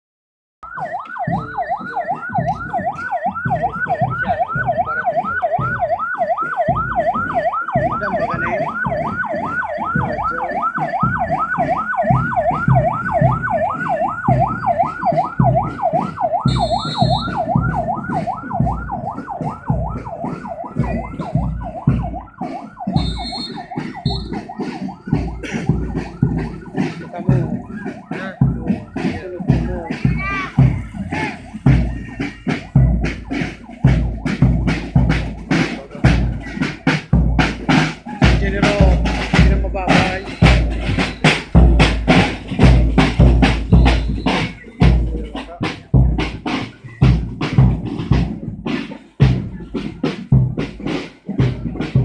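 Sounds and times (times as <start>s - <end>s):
police siren yelping: 0.6s - 52.0s
steady thumping beat: 0.6s - 52.0s
short high whistle-like tones: 16.5s - 17.4s, 23.0s - 24.4s.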